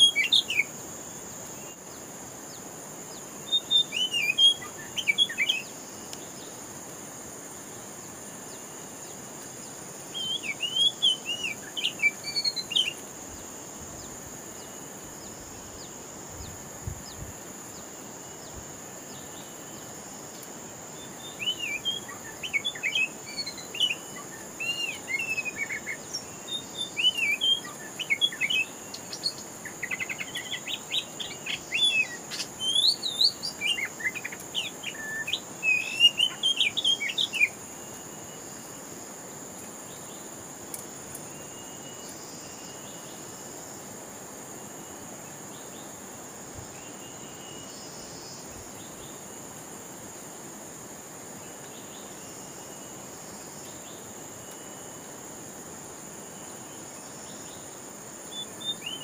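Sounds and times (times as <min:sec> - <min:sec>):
bird singing whistled phrases: 0:00.0 - 0:00.7, 0:03.5 - 0:05.7, 0:10.1 - 0:13.0, 0:21.2 - 0:37.6, 0:58.3 - 0:59.0.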